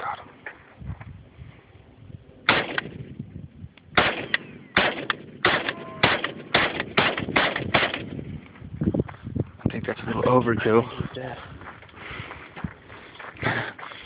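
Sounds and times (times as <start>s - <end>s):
rifle single shots: 2.4s - 3.0s, 3.9s - 8.2s.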